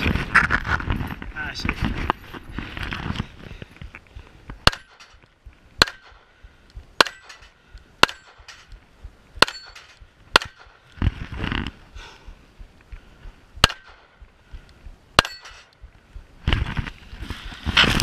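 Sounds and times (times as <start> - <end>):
pistol shots: 4.6 - 5.2, 5.8 - 6.3, 7.0 - 8.8, 9.4 - 10.8, 13.6 - 14.2.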